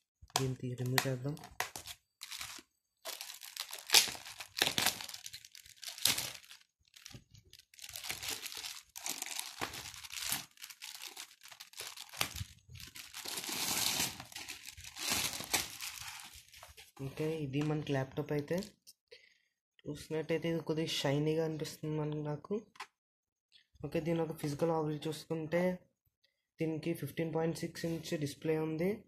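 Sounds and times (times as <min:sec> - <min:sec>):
plastic wrapping crinkling: 0:00.2 - 0:17.0.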